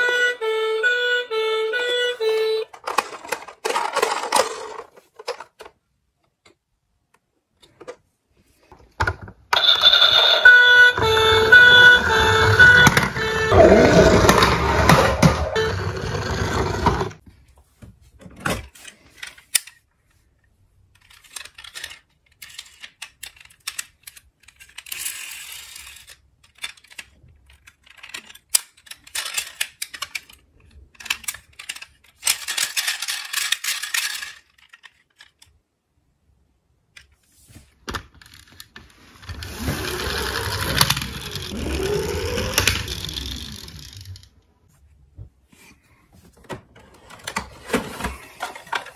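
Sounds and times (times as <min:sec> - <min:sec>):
toy cars clattering in a box: 0:02.7 - 0:05.8, 0:20.9 - 0:35.5, 0:37.9 - 0:44.3, 0:46.9 - 0:48.9
toy electronic siren wailing: 0:09.6 - 0:17.0, 0:39.3 - 0:44.2.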